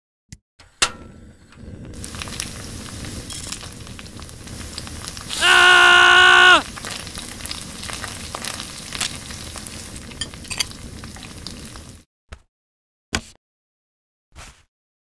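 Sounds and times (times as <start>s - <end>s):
food sizzling in a pan: 1.9s - 12.0s.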